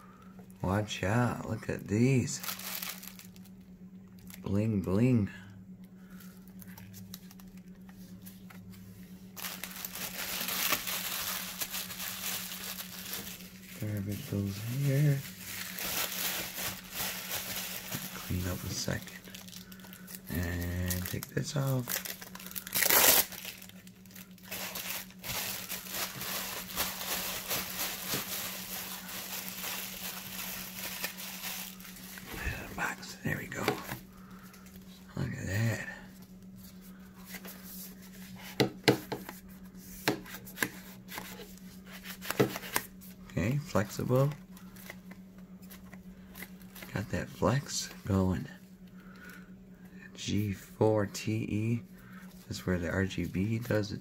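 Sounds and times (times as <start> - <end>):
steady low hum: 0.0 - 54.0
plastic wrap crinkling: 2.3 - 4.6, 9.3 - 33.1.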